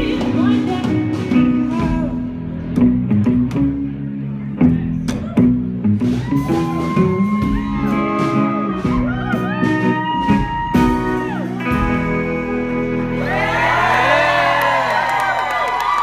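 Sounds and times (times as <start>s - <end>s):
double bass playing: 0.0s - 14.0s
electric guitar playing: 0.0s - 14.6s
crowd cheering and whooping: 5.2s - 12.0s, 13.1s - 16.0s.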